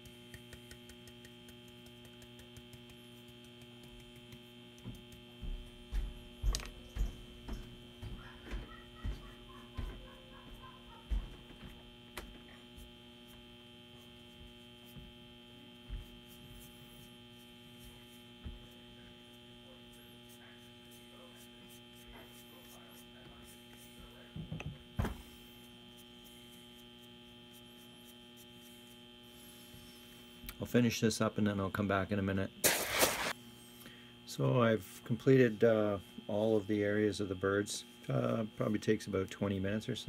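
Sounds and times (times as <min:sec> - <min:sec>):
brush tapping on wood: 0:00.0 - 0:10.1
electrical mains hum: 0:00.0 - 0:40.0.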